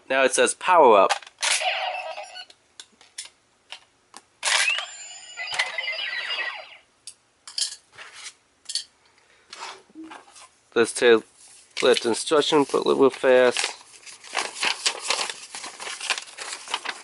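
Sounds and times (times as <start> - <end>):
electronic sweeping tones: 4.6 - 6.9.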